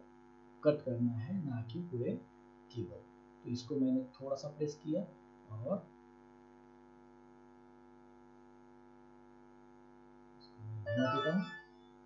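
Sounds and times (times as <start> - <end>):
electrical mains hum: 0.0 - 12.0
man speaking: 0.6 - 5.8, 10.6 - 11.6.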